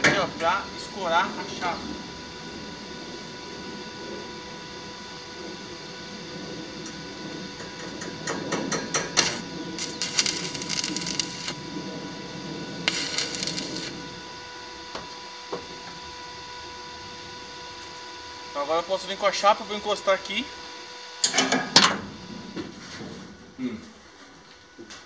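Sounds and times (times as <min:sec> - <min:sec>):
faint hum: 0:00.3 - 0:21.0
steel scraping: 0:09.2 - 0:11.6, 0:12.8 - 0:14.1.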